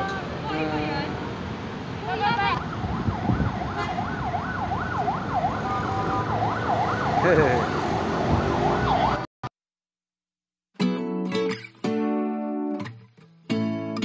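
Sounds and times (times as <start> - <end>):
low street traffic: 0.0 - 9.3
siren yelping: 2.2 - 9.3.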